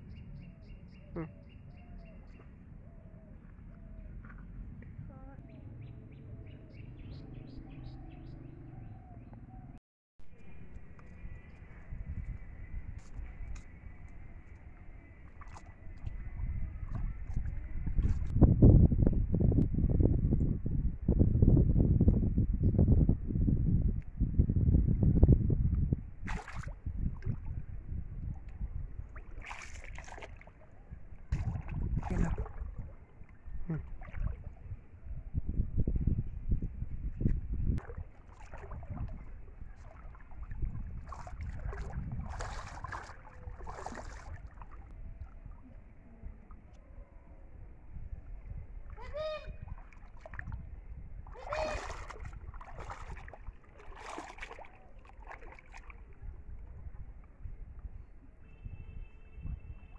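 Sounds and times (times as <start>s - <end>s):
wind rumble on microphone: 0.0s - 59.9s
stick splashing in pond water: 15.2s - 16.1s, 26.2s - 27.6s, 28.2s - 34.6s, 37.8s - 45.6s, 49.6s - 50.6s, 51.2s - 56.2s.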